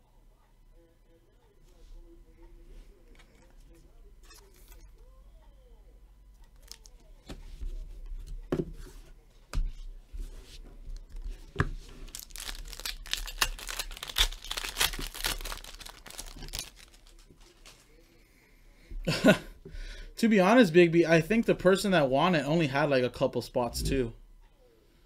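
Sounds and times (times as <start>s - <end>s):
plastic sleeve crinkling: 6.6s - 7.0s, 11.0s - 17.9s.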